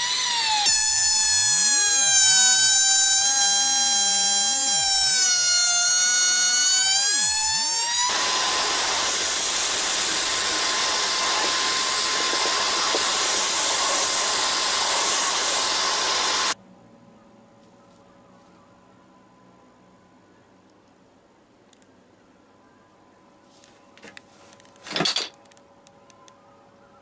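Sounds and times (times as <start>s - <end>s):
router cutting wood: 0.0s - 16.6s
router motor whining: 0.0s - 16.6s.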